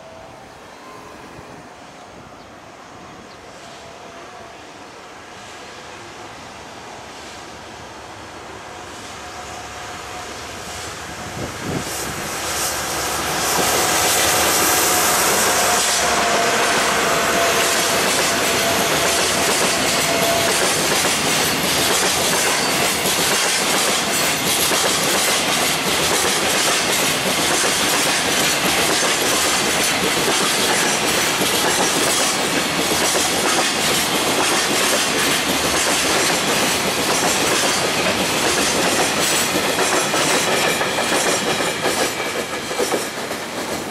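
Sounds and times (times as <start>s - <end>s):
diesel locomotive passing: 0.0s - 43.9s
train wheels clacking over rail joints: 13.3s - 43.9s.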